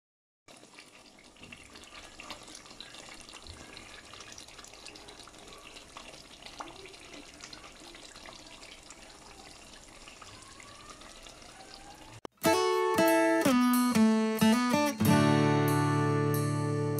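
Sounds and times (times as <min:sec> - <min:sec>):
curry bubbling in pot: 0:00.5 - 0:12.2.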